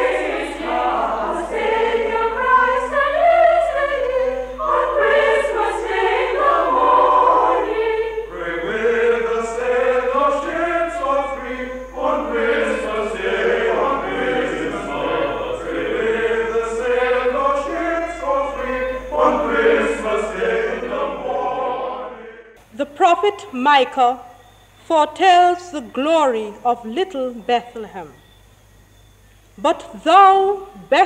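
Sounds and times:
choir singing a carol: 0.0 - 24.2
low steady hum: 0.0 - 31.0.

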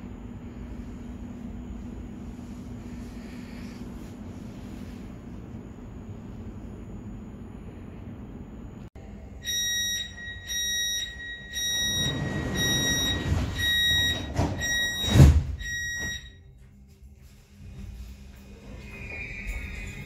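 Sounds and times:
door warning beeps: 9.4 - 16.5
train doors sliding: 11.6 - 16.1
doors shutting thud: 11.9 - 16.2.

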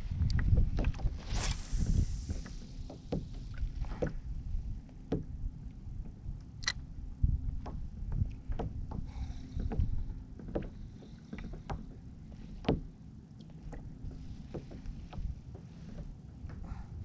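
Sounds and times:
small waves lapping against hull: 2.6 - 17.0
light knocks on hull: 7.6 - 12.0.

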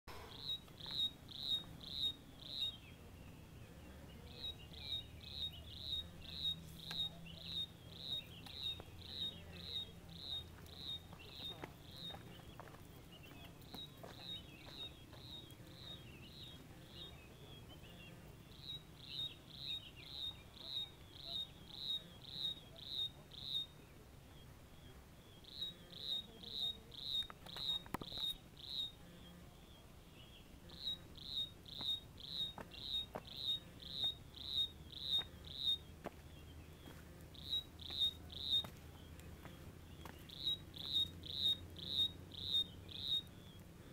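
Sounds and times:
insect chirping: 0.3 - 2.7, 4.4 - 12.2, 18.5 - 23.8, 25.4 - 29.0, 30.7 - 35.8, 37.3 - 38.7, 40.3 - 43.4.

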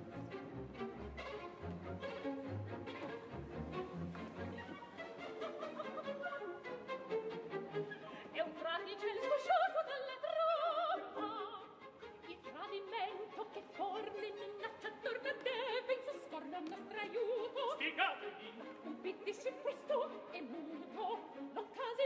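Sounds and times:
orchestra: 0.0 - 22.0
operatic voices singing: 12.4 - 22.0.

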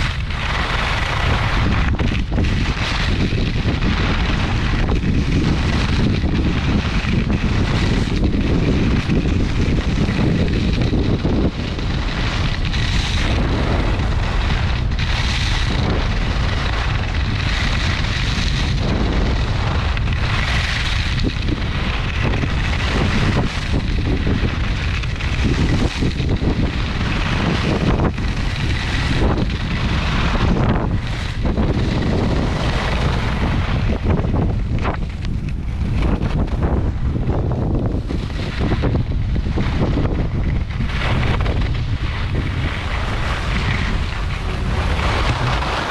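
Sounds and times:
wind buffeting microphone: 0.0 - 45.9
skis hissing on snow: 40.8 - 45.9.

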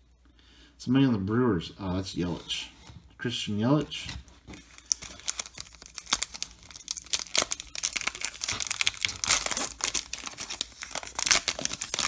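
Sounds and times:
wrapper crinkling and tearing: 4.5 - 12.0.

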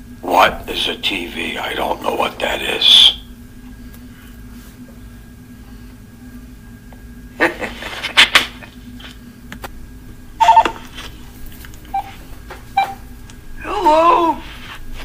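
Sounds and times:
telephone line hum: 0.0 - 15.0
telephone beeps: 10.4 - 10.8, 11.9 - 12.2, 12.8 - 13.0.

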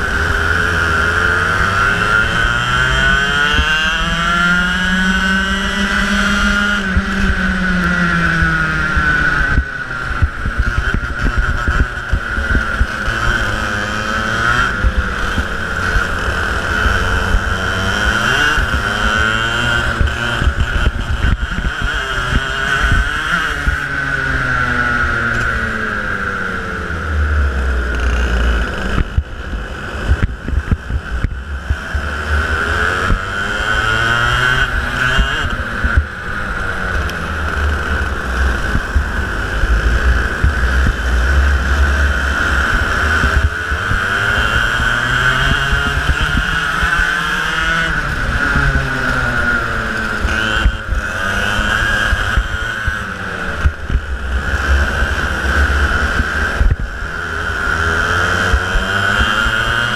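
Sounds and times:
kart engine revving: 0.0 - 59.9
other karts passing: 0.0 - 59.9
chassis rumble: 24.6 - 59.9.

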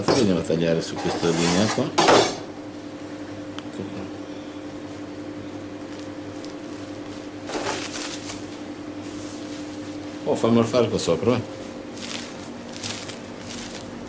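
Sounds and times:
kitchen machinery humming: 0.0 - 14.0
cling film crackling: 11.8 - 14.0.

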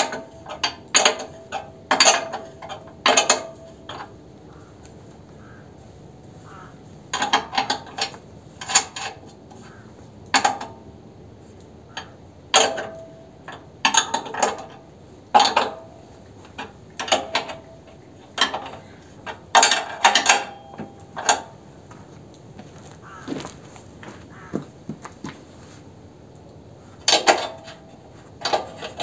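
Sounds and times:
wrench metallic clicks and clanks: 0.0 - 4.2, 7.1 - 9.6, 10.2 - 10.9, 11.9 - 21.6, 27.0 - 29.0.

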